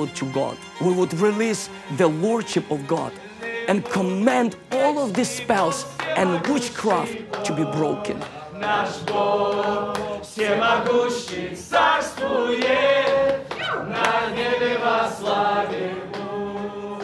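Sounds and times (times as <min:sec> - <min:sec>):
group of people praying aloud: 0:03.4 - 0:03.7, 0:05.7 - 0:17.0.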